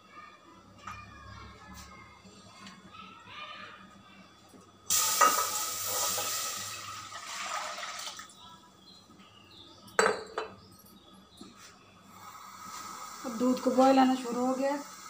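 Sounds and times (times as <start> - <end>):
milk pouring into a saucepan: 4.9 - 8.3.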